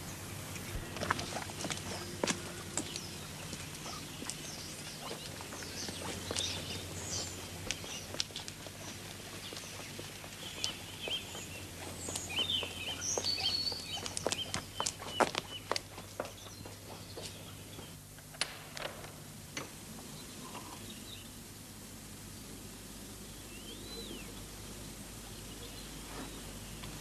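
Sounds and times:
small birds chirping: 0.0 - 18.0, 23.3 - 27.0
low steady hum: 0.0 - 27.0
footsteps on a path: 0.6 - 18.0.

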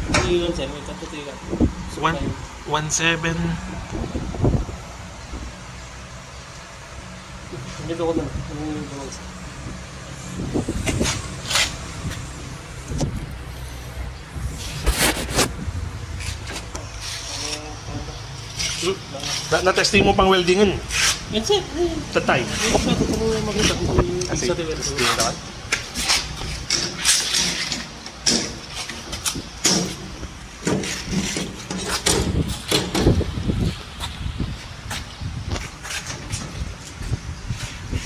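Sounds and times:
diesel generator running: 0.0 - 37.8
sharp clicks and knocks: 25.1 - 33.3.

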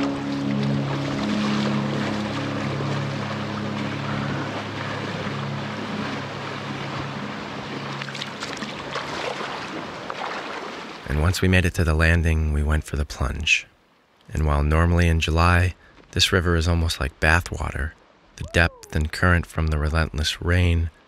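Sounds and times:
feet splashing in water: 0.0 - 11.0.

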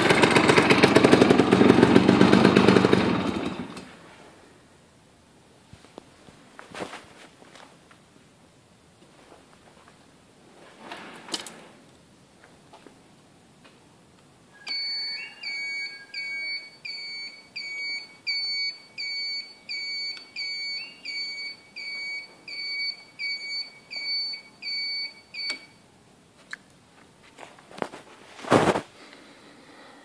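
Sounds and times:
high-pitched electronic beeps: 14.6 - 25.7
loud brief rustle or bump: 27.8 - 28.9.

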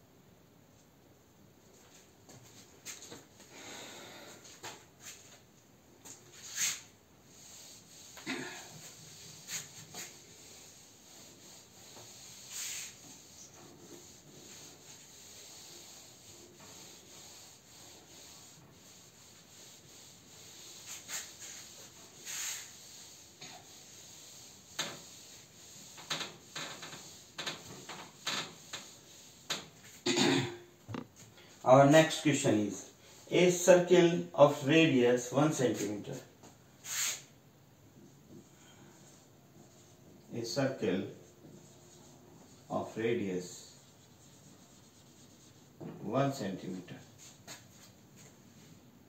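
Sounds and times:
eraser rubbing whiteboard: 6.2 - 30.0, 41.4 - 42.7, 43.5 - 45.9.

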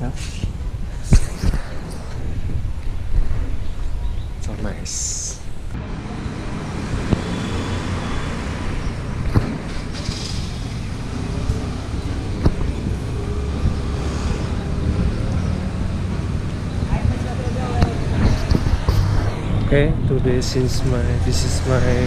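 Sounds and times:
vehicles passing: 0.0 - 22.0.

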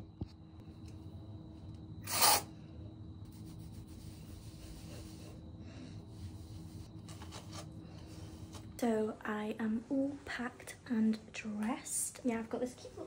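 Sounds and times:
sharp hiss: 2.0 - 2.5.

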